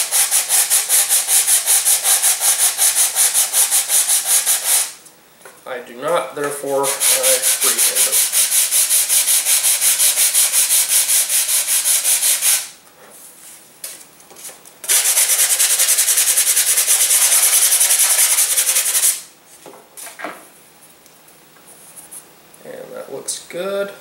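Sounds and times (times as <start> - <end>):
hand sanding wood: 0.0 - 5.0, 6.4 - 12.8, 14.4 - 19.3.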